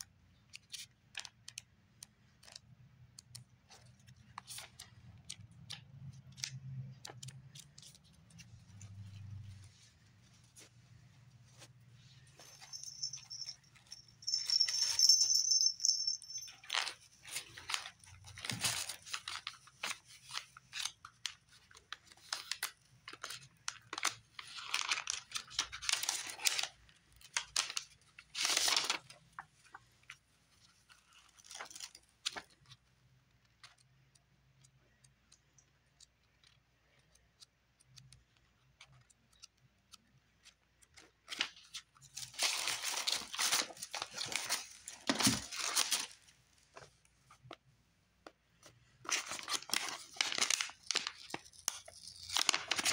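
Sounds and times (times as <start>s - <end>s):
paper rustling and crinkling: 3.6s - 32.9s, 38.8s - 47.6s, 48.5s - 52.9s
high ringing tone: 12.5s - 16.8s.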